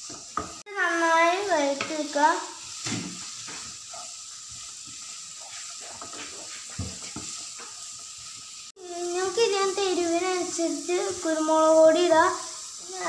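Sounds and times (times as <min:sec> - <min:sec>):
onions sizzling in a pan: 0:00.0 - 0:13.0
wooden spatula scraping pan: 0:03.1 - 0:08.5.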